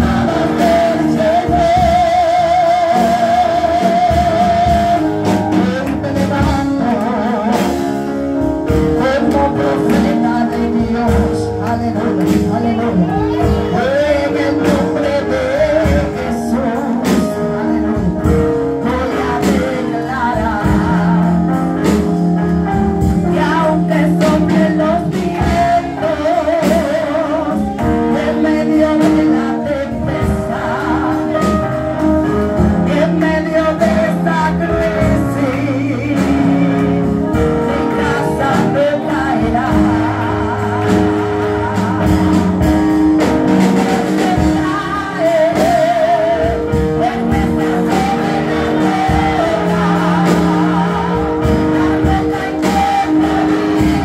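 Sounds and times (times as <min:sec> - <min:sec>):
instrumental accompaniment: 0:00.0 - 0:54.0
woman singing into microphone: 0:12.2 - 0:16.2.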